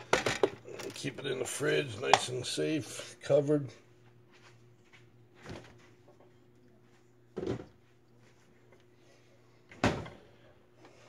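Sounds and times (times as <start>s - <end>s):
objects clattering: 0.0s - 1.0s
steady low hum: 0.0s - 11.0s.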